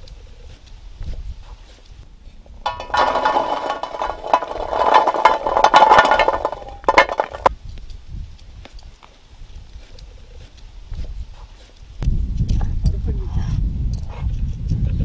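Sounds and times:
metal cookware clattering: 0:02.6 - 0:07.5.

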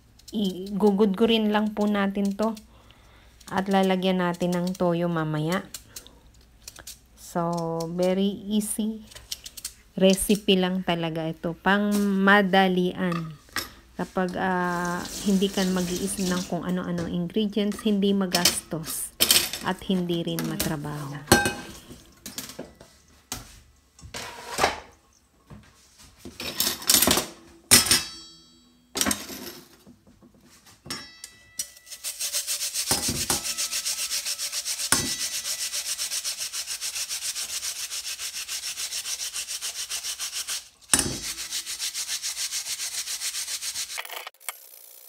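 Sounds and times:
radish rasping on grater: 0:31.9 - 0:44.0.

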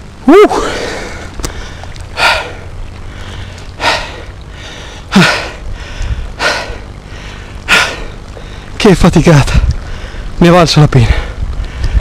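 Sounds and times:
man gasping for breath: 0:00.5 - 0:08.7.

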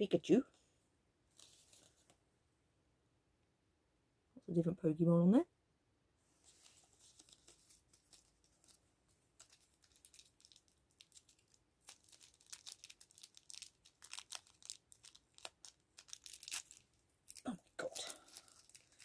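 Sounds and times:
plastic packaging crinkling: 0:06.5 - 0:19.0.

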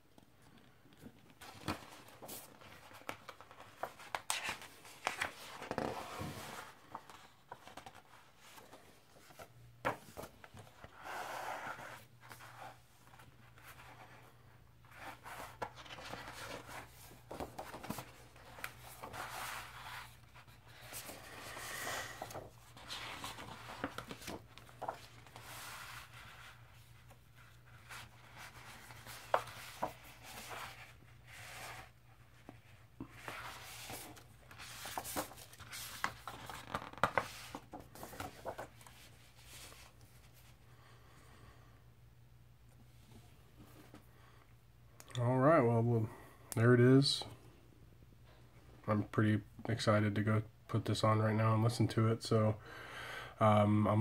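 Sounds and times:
paper pages rustling: 0:01.0 - 0:40.5.

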